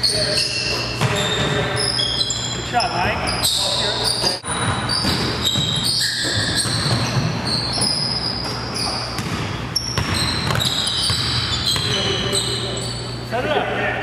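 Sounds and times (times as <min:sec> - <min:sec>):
sneakers squeaking on floor: 0:00.0 - 0:13.3
basketball bouncing: 0:01.0 - 0:01.7, 0:04.2 - 0:12.6.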